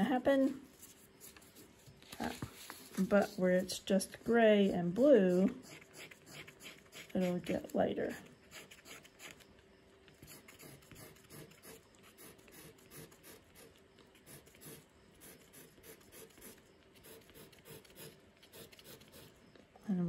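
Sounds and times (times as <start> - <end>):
wooden skewer scratching paper: 0.8 - 9.4, 10.2 - 19.3.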